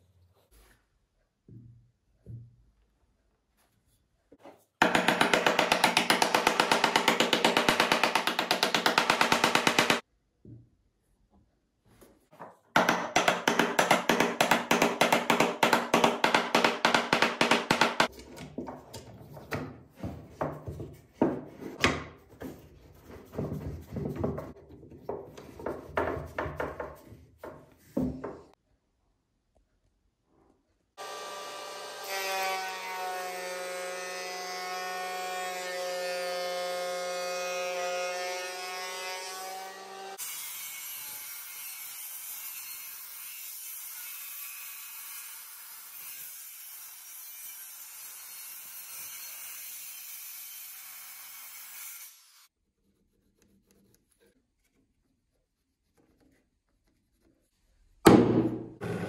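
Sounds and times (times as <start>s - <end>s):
cutter planing wood: 58.8s - 59.0s.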